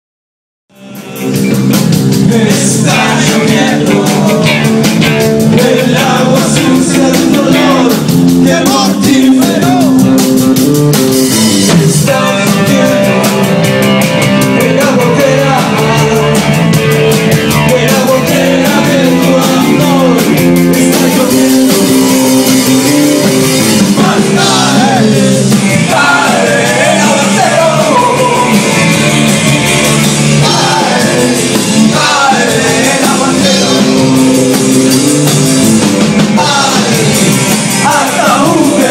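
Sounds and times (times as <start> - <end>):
man singing: 0.7 - 10.4, 11.5 - 16.7, 17.4 - 29.1, 29.9 - 35.5, 36.2 - 38.9
rock band playing live: 0.7 - 38.9.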